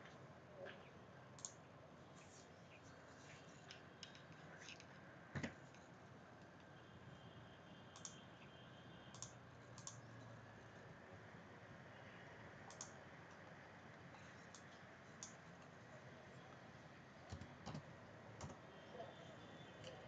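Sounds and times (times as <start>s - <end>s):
computer mouse clicks: 1.4s - 1.6s, 7.9s - 8.2s, 9.1s - 10.1s, 12.7s - 13.4s, 14.4s - 15.7s.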